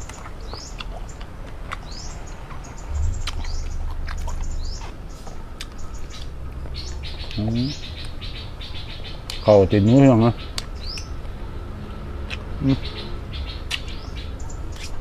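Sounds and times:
birds chirping: 0:00.0 - 0:15.0
low rumble: 0:02.1 - 0:05.1.

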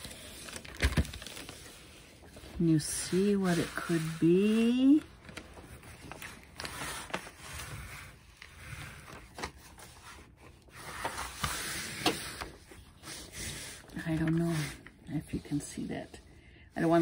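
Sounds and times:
sheet rustling and crinkling: 0:00.0 - 0:16.2.

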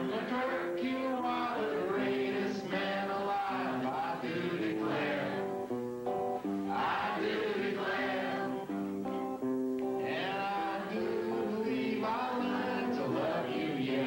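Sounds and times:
man singing into a microphone: 0:00.0 - 0:04.9, 0:10.0 - 0:14.0
guitar picking notes: 0:00.0 - 0:14.0.

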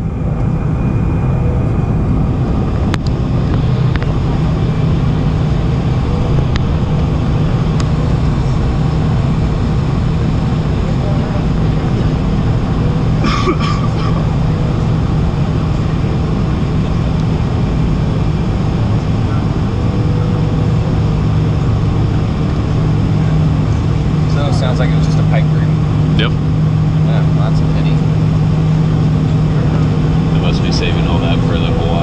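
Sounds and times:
jet engines idling in cabin: 0:00.0 - 0:32.0.

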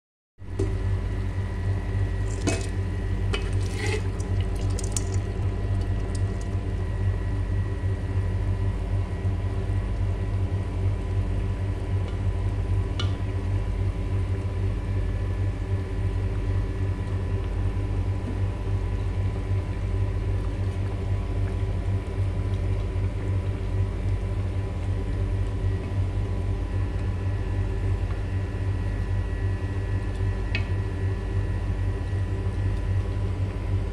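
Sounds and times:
pot of broth cooking: 0:00.5 - 0:07.3.

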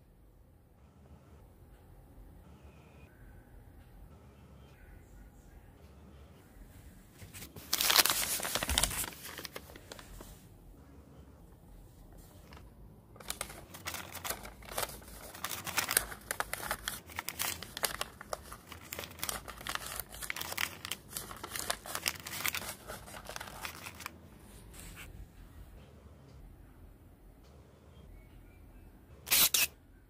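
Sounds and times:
paper being crumpled: 0:07.2 - 0:10.3, 0:13.2 - 0:25.1.

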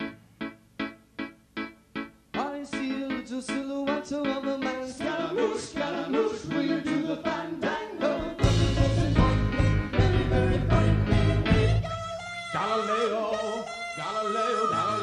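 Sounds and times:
person singing: 0:02.4 - 0:15.0
rock band playing: 0:08.1 - 0:11.9.

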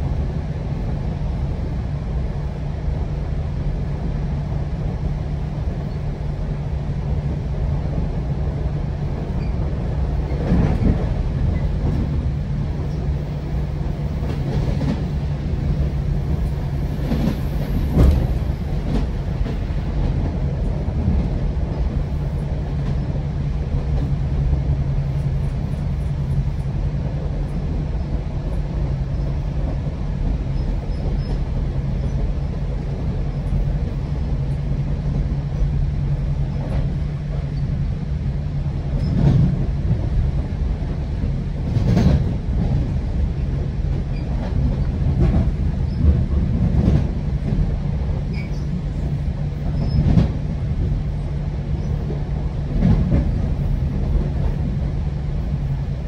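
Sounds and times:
train rumble and hum: 0:00.0 - 0:56.0
knocks from train running gear: 0:10.3 - 0:12.2, 0:17.0 - 0:20.4, 0:39.0 - 0:40.1, 0:41.2 - 0:42.9, 0:43.9 - 0:48.6, 0:49.6 - 0:50.9, 0:52.7 - 0:54.7.

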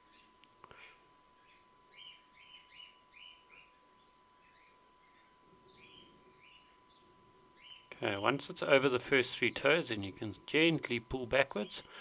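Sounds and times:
faint high hum: 0:00.0 - 0:12.0
finch chirps: 0:01.4 - 0:07.9.

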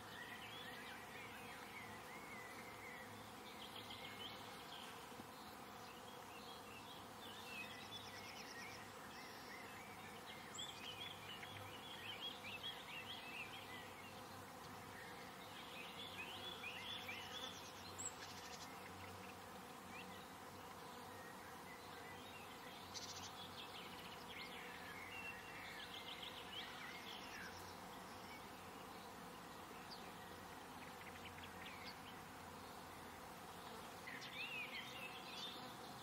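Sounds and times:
insect buzzing: 0:00.0 - 0:36.0
small birds twittering: 0:20.0 - 0:29.2.

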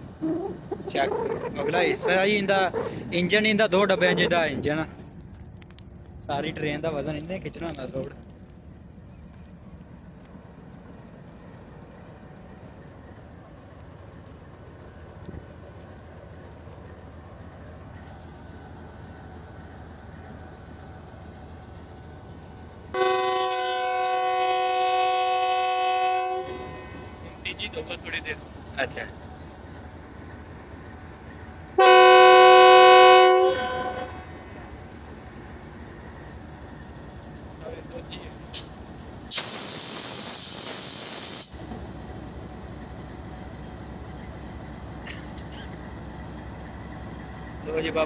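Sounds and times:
locomotive engine rumbling: 0:00.0 - 0:48.0
locomotive air horn blast: 0:22.9 - 0:27.2, 0:31.8 - 0:34.4.

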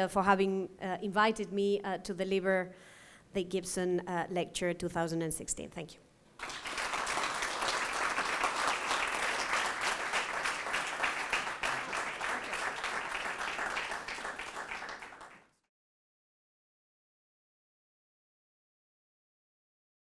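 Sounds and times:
audience applauding: 0:06.4 - 0:15.6.

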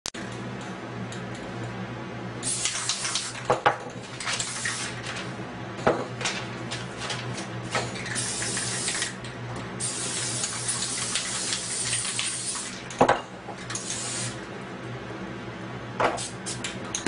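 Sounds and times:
spray paint can hissing: 0:02.4 - 0:03.4, 0:04.4 - 0:04.9, 0:08.1 - 0:09.2, 0:09.8 - 0:12.8, 0:13.8 - 0:14.4.

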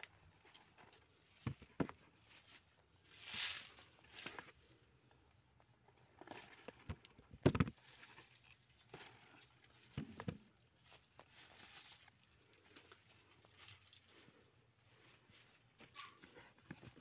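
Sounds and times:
rustling through leafy vines: 0:02.0 - 0:05.0, 0:07.7 - 0:17.0.

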